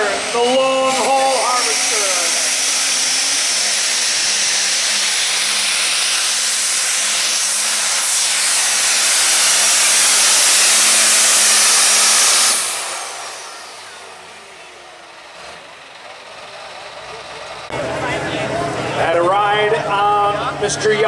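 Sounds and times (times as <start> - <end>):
diesel engine at full throttle: 0.0 - 21.0
turbo hiss: 1.1 - 14.3.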